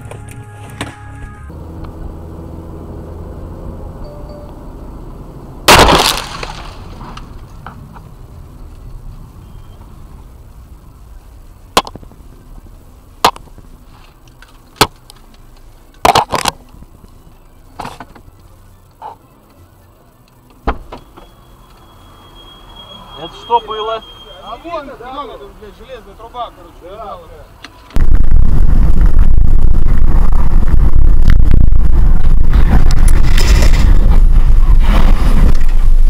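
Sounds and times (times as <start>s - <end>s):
road rumble: 0.0s - 36.0s
windshield crash with breaking glass: 5.7s - 7.1s.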